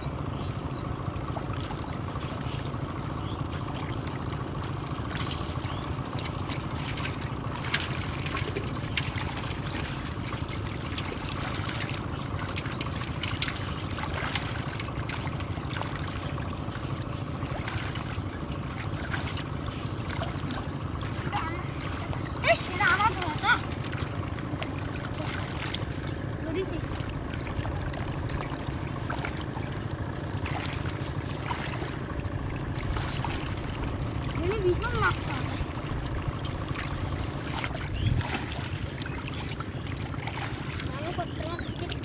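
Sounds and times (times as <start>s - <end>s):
low rumble: 0.0s - 42.0s
muddy water splashing and trickling: 0.0s - 42.0s.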